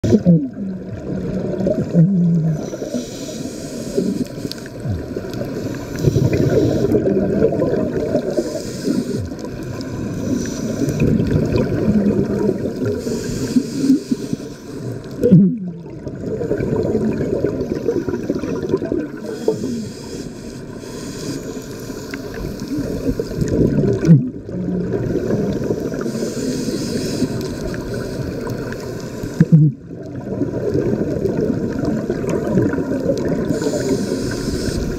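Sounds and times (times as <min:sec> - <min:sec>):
gurgle of exhaled bubbles: 0:00.0 - 0:03.0, 0:03.9 - 0:14.3, 0:15.1 - 0:19.6, 0:22.3 - 0:34.9
regulator inhale hiss: 0:02.5 - 0:07.1, 0:08.1 - 0:11.2, 0:12.6 - 0:15.2, 0:17.6 - 0:23.5, 0:25.0 - 0:29.6, 0:32.8 - 0:34.9.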